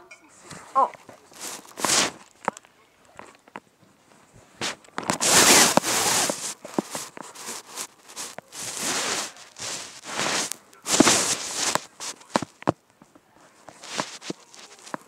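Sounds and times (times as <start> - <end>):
rustling swishes: 0.4 - 2.4, 4.2 - 12.7, 13.6 - 15.0.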